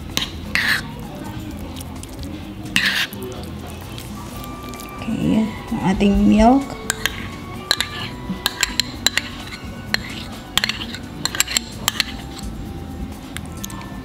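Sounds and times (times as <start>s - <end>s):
ceramic crockery clinking: 5.8s - 12.5s.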